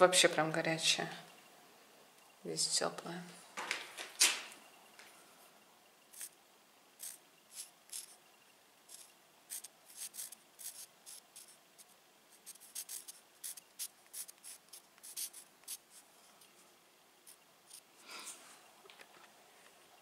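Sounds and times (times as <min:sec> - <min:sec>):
pencil scratching on a wall: 0:07.0 - 0:08.2, 0:08.9 - 0:16.1.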